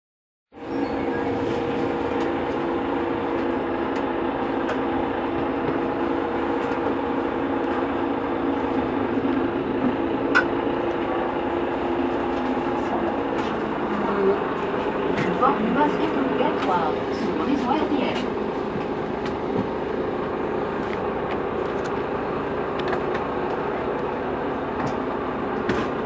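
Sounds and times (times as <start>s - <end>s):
bus idling hum: 0.5s - 26.0s.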